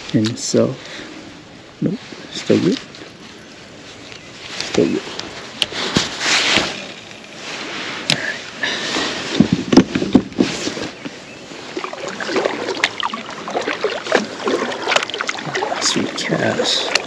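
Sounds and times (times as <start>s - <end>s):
paddle splashing in water: 8.9s - 17.0s.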